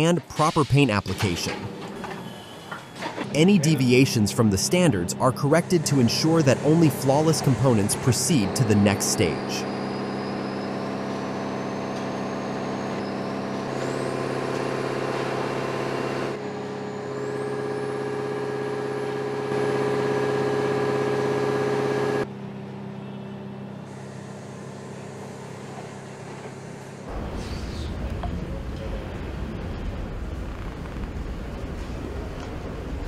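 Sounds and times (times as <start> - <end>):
high whine: 27.1 - 33.0.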